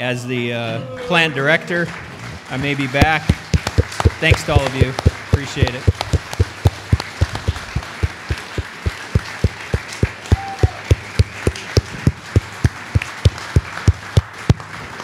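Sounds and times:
audience applauding: 0:01.7 - 0:15.0
close hand claps: 0:02.0 - 0:15.0.

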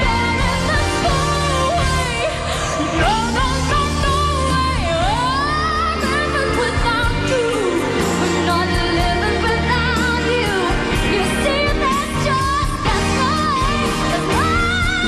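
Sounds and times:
live band playing: 0:00.0 - 0:15.0
woman singing into a microphone: 0:00.0 - 0:15.0.

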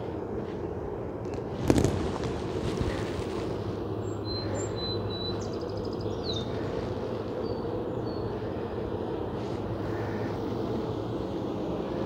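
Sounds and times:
honeybee colony humming: 0:00.0 - 0:12.0
birds chirping: 0:03.9 - 0:09.1.

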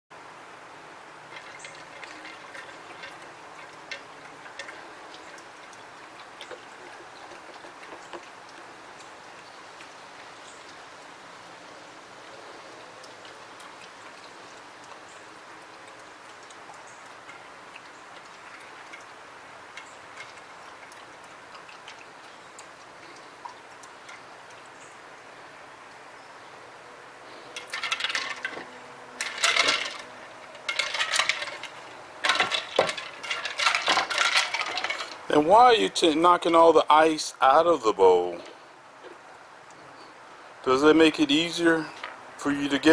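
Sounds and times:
faint steady hiss: 0:00.1 - 0:42.9
ice cubes clattering in bowl: 0:01.3 - 0:08.2, 0:27.6 - 0:35.6.

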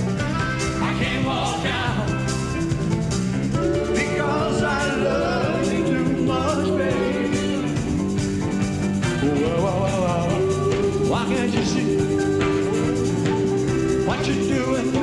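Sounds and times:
live rock band music: 0:00.0 - 0:15.0
person singing: 0:03.6 - 0:07.8, 0:09.2 - 0:15.0.

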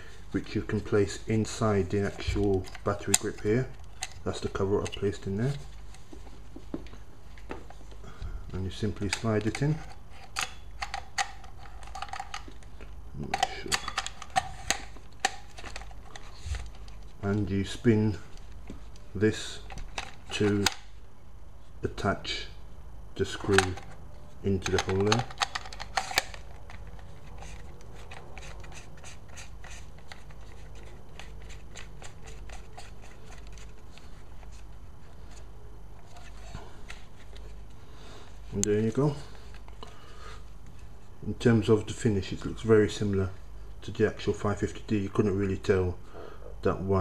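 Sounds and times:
thumbwheel small irregular clicks: 0:24.6 - 0:34.1
rubbing and handling of camera: 0:24.6 - 0:38.6.

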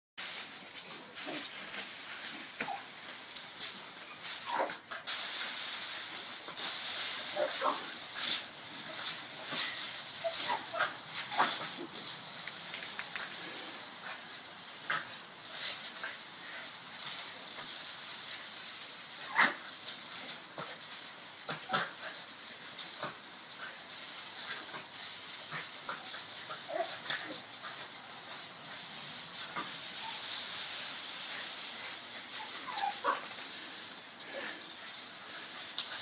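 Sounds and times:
hose spray hissing on brick: 0:00.2 - 0:36.0
small dogs barking and yapping: 0:04.1 - 0:04.8, 0:08.9 - 0:13.3, 0:25.8 - 0:27.8, 0:32.2 - 0:33.4.

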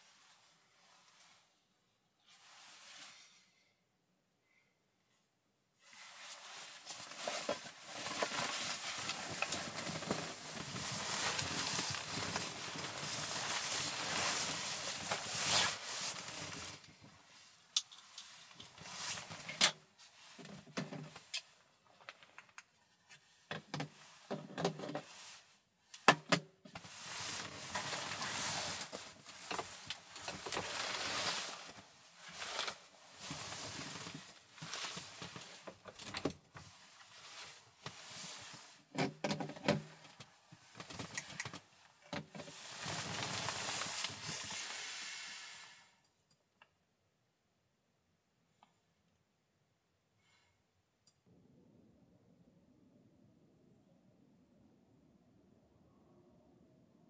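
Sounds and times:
fabric rustling: 0:05.8 - 0:20.5, 0:26.8 - 0:35.9, 0:42.5 - 0:45.0.

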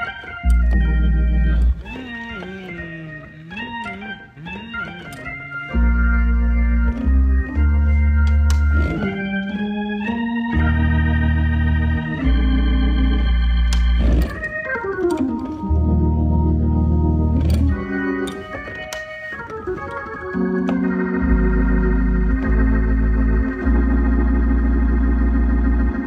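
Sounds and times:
deep organ bass notes: 0:00.0 - 0:26.0
organ chords: 0:00.0 - 0:26.0.

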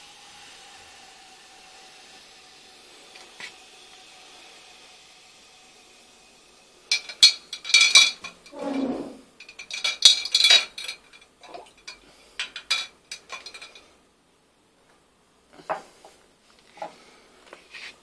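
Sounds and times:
glassware clinking: 0:06.9 - 0:08.6, 0:09.4 - 0:13.9.

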